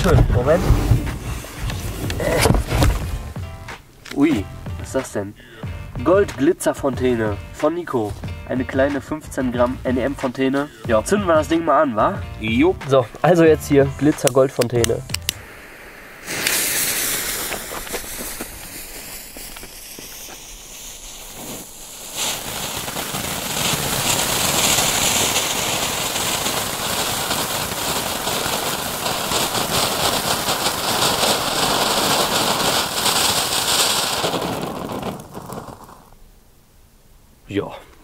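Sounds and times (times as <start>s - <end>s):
firework fountain hissing and crackling: 0.0s - 4.4s, 15.1s - 36.2s
fuse sputtering and hissing: 15.1s - 36.2s.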